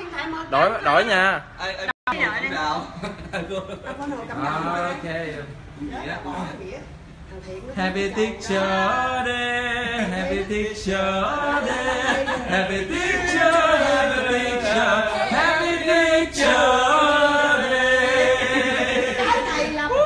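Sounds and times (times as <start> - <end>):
group singing without instruments: 7.7 - 20.0.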